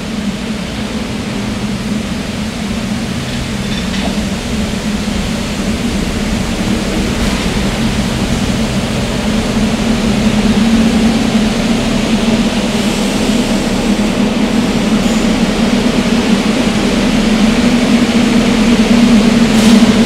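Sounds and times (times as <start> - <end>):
subway train equipment drone: 0.0 - 20.0
hiss: 2.1 - 20.0.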